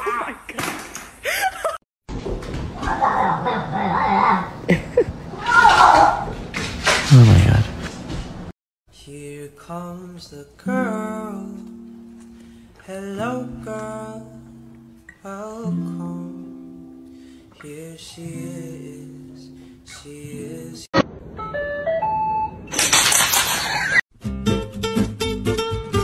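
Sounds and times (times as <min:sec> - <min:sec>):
person singing: 0:09.0 - 0:11.9, 0:12.8 - 0:14.6, 0:15.2 - 0:16.8, 0:17.5 - 0:20.9
acoustic guitar chords: 0:10.6 - 0:20.8.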